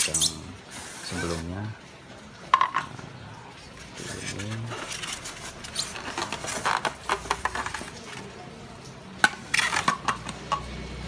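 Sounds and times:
clatter on tile floor: 2.5 - 3.0, 4.2 - 8.5, 9.2 - 10.8
plastic mirrors clicking and clacking: 4.8 - 8.4, 9.2 - 11.0.

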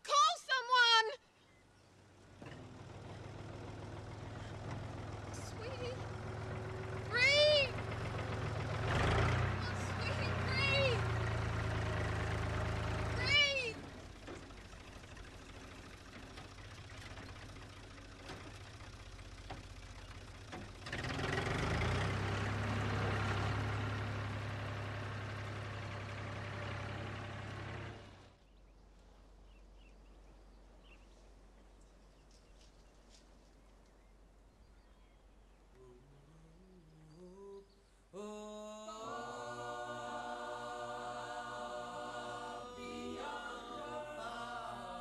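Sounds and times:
tractor engine running and revving: 2.1 - 28.4.

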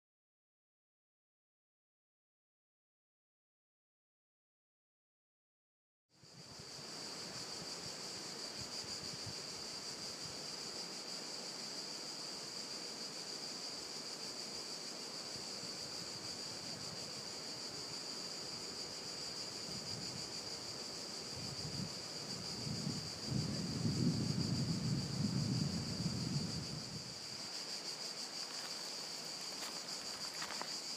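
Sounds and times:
cicada chorus drone: 6.2 - 30.9
wind rumbling on microphone: 21.2 - 27.3.

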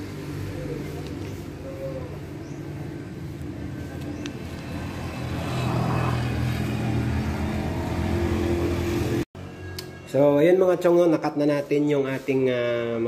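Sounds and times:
vehicle engine running: 0.0 - 9.3.

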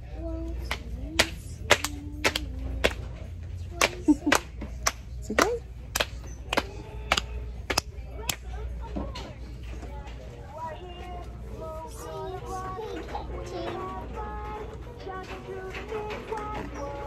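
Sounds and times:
child clapping hands: 0.7 - 3.0, 3.8 - 8.5.

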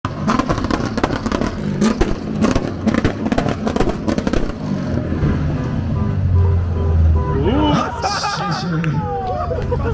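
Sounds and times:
exhaust pops and bangs: 0.1 - 5.0
sports car engine revving: 0.1 - 7.4.

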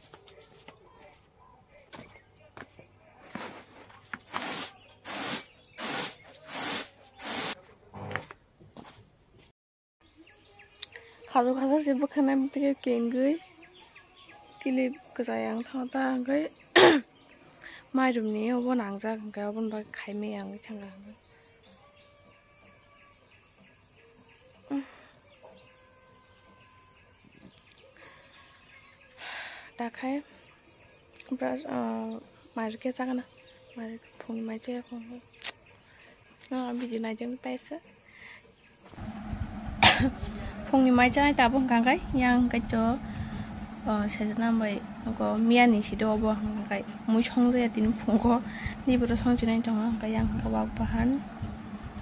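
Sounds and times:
small birds chirping: 4.0 - 8.9, 10.0 - 39.0
grain swishing in winnowing tray: 4.3 - 7.6.

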